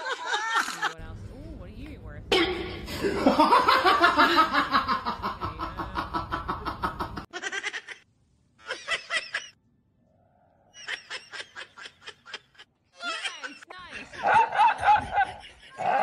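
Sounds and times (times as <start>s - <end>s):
person laughing: 0.0s - 1.0s, 2.4s - 8.0s, 10.8s - 16.0s.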